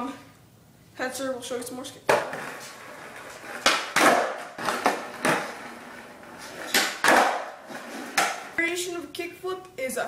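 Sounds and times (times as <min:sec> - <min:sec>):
skateboard tail clacks: 0:02.1 - 0:08.6
skateboard rolling on concrete: 0:02.1 - 0:08.7.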